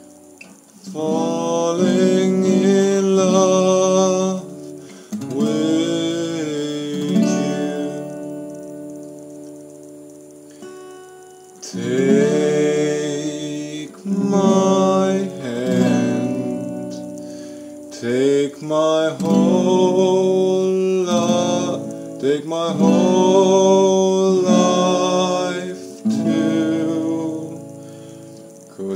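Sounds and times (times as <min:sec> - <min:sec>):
acoustic guitar strumming: 0:00.0 - 0:28.9
man singing: 0:00.8 - 0:08.3, 0:11.6 - 0:17.2, 0:17.9 - 0:27.8, 0:28.7 - 0:28.9.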